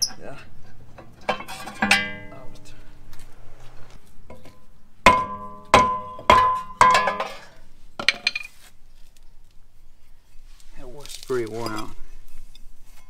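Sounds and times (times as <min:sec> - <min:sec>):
metallic clank: 0:00.9 - 0:02.7, 0:04.3 - 0:08.5
hammer striking ringing brake disc: 0:01.3 - 0:02.7, 0:05.1 - 0:07.5.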